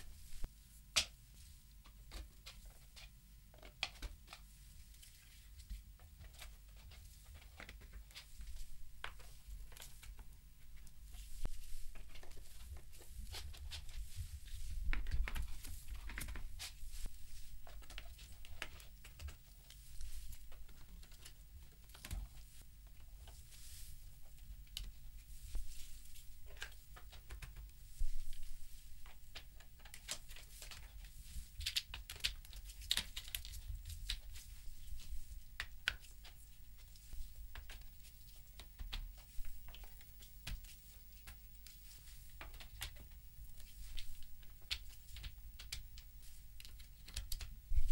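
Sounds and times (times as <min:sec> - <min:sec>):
rustling: 0:00.0 - 0:47.9.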